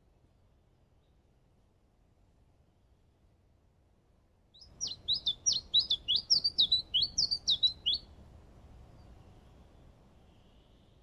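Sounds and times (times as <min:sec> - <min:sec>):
songbird singing: 0:04.5 - 0:08.2.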